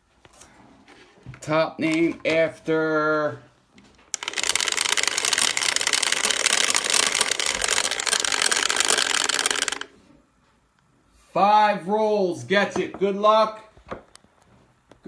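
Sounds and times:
dice rattling: 4.2s - 9.9s.

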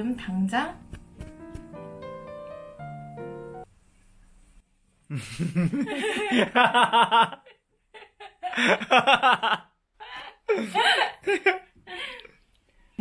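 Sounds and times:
soft piano music: 0.0s - 3.7s
woman laughing: 5.2s - 12.3s.

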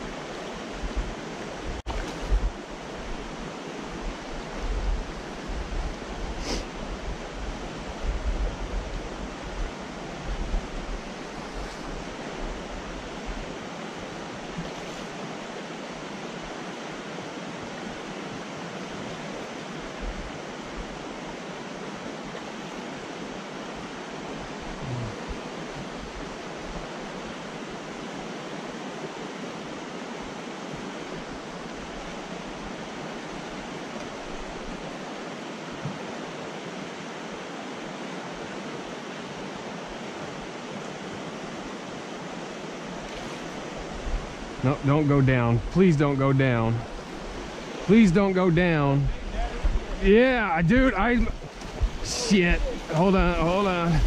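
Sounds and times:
creek water rushing: 0.0s - 54.0s
low thumps: 49.0s - 54.0s.

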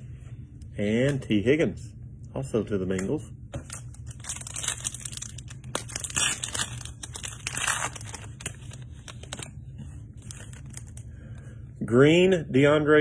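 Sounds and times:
wrapper tearing and crinkling: 3.7s - 9.5s, 10.2s - 11.0s.

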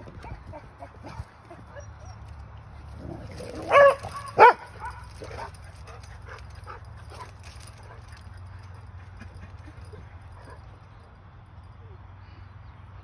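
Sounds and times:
dog yelping barks: 3.3s - 5.6s.

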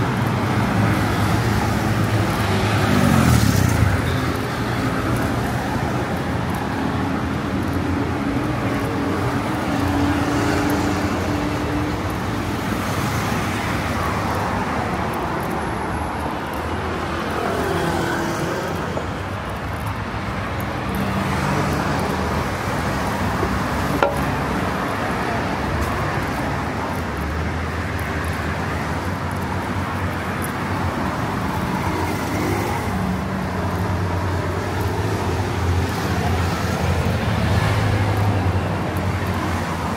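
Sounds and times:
car engines passing: 0.0s - 39.9s.

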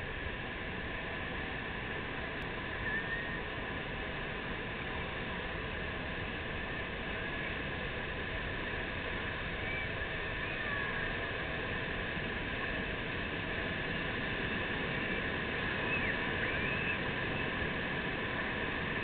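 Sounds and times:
ocean surf breaking on beach: 0.0s - 19.0s
faint high-pitched calls: 2.8s - 3.5s, 9.5s - 11.2s, 15.8s - 17.5s.

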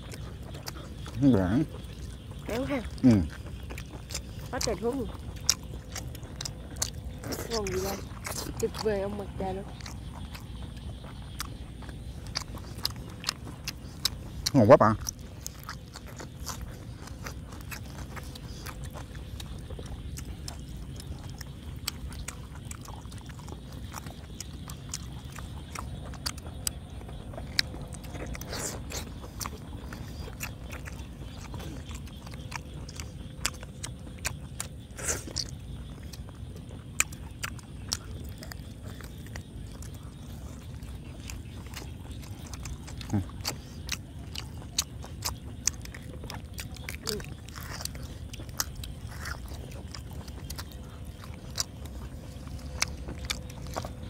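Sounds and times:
low background hum: 0.0s - 54.0s
people chewing and biting: 0.0s - 54.0s.

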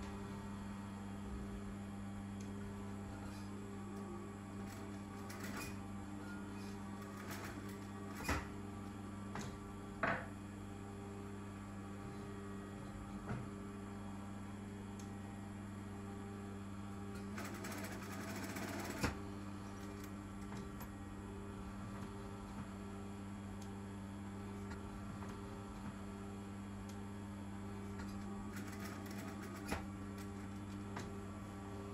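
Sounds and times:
sewing machine humming: 2.8s - 8.6s, 16.9s - 22.4s, 27.6s - 31.9s
sewing machine stitching: 4.6s - 5.8s, 17.2s - 19.2s, 28.5s - 30.6s
sewing machine clicks: 28.5s - 30.4s.

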